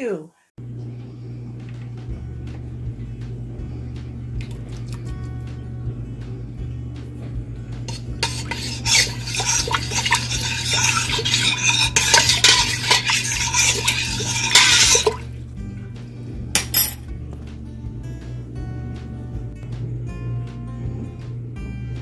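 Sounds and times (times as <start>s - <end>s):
spoon scraping a steel pot: 7.9s - 15.3s.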